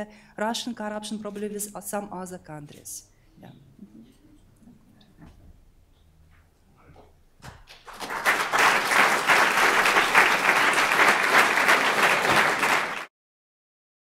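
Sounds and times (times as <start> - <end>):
audience applauding: 7.7 - 13.1.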